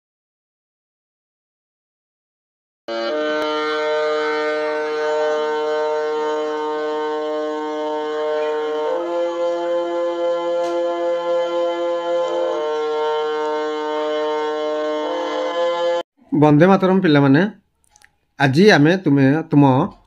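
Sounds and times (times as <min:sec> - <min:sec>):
instrumental music with held chords: 0:02.9 - 0:16.0.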